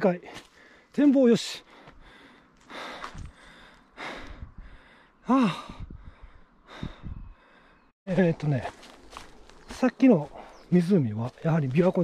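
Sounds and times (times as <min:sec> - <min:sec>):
heavy breathing: 0:00.3 - 0:00.9, 0:01.6 - 0:07.9.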